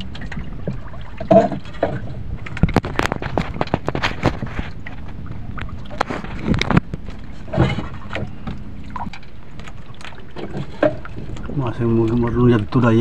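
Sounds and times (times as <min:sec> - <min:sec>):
low rumble: 0:00.0 - 0:10.3
water slapping against boat hull: 0:00.0 - 0:13.0.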